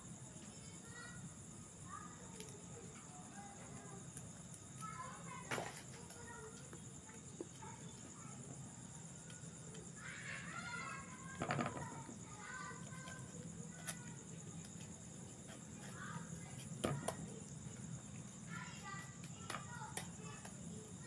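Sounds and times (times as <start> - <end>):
night insects chirring: 0.0 - 21.0.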